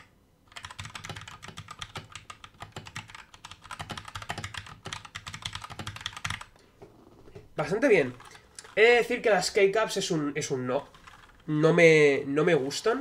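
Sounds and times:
fast typing on mechanical keyboard: 0:00.5 - 0:06.5, 0:07.6 - 0:09.4, 0:10.4 - 0:11.5.

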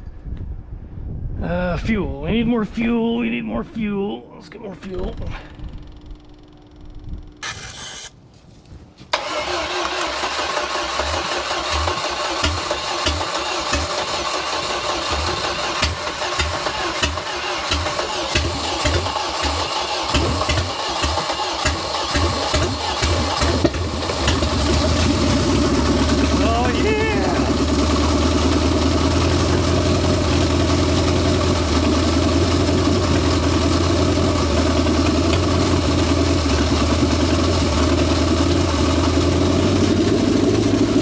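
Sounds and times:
engine starter cranking: 0:07.4 - 0:08.1, 0:09.1 - 0:27.7
engine firing unevenly: 0:09.2 - 0:41.0.

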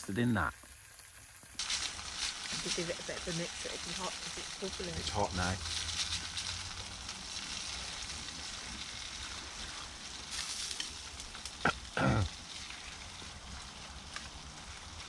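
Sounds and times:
low voice: 0:00.0 - 0:00.5, 0:04.9 - 0:05.6, 0:12.0 - 0:12.3
curry bubbling and sizzling: 0:00.0 - 0:15.0.

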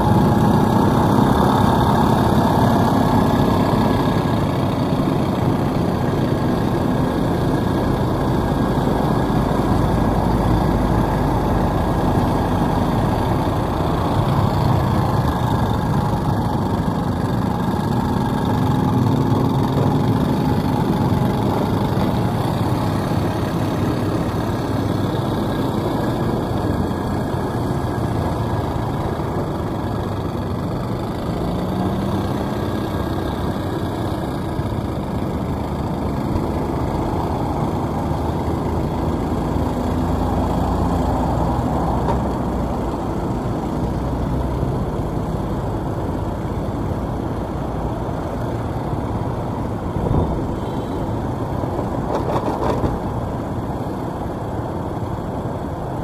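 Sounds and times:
car engine hum: 0:00.0 - 0:56.0
road rumble: 0:00.0 - 0:56.0.

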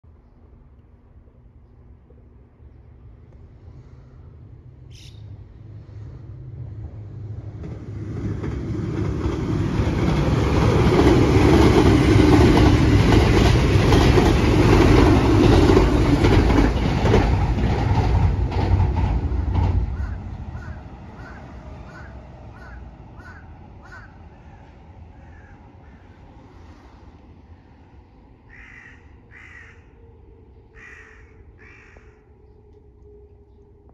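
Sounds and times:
electric train passing: 0:00.4 - 0:33.9
crow cawing: 0:20.0 - 0:26.2, 0:28.5 - 0:30.0, 0:30.7 - 0:32.3.

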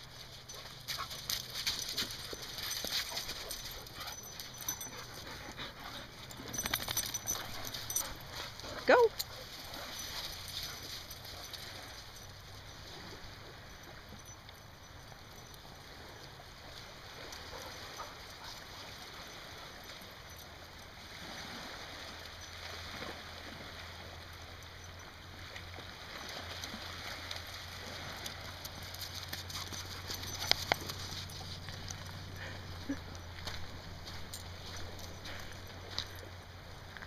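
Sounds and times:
small waves lapping on pebbles: 0:15.7 - 0:29.4.

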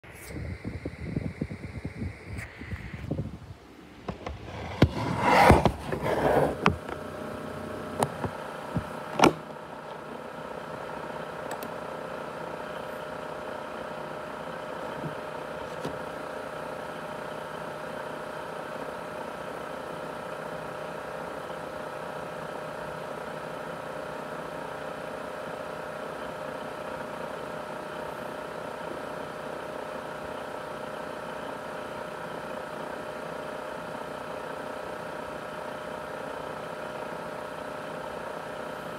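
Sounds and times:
laptop cooling fan whirring: 0:00.0 - 0:38.9
sharp clicks: 0:11.5 - 0:11.7.

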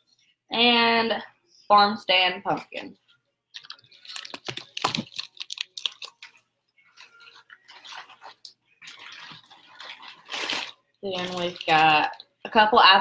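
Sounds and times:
plastic packaging crackling: 0:03.5 - 0:12.4.

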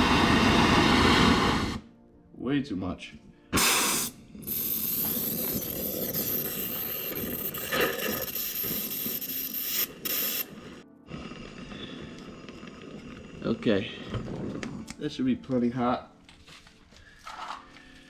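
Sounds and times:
gas torch hissing: 0:00.0 - 0:01.9, 0:03.5 - 0:15.2.

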